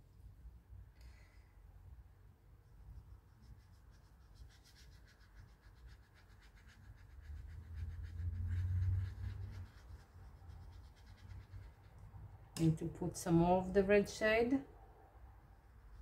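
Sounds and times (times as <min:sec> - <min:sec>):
paintbrush scratchy strokes: 0:02.6 - 0:12.3, 0:15.7 - 0:16.0.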